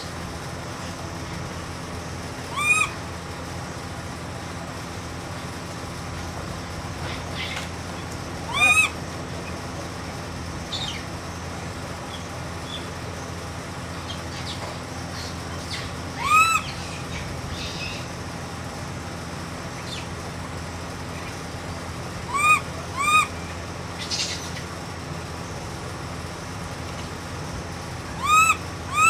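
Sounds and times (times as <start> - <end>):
steady low hum: 0.0 - 29.0
baby monkey coo calls: 2.4 - 3.1, 6.9 - 9.6, 14.0 - 18.2, 22.1 - 24.8, 28.1 - 29.0.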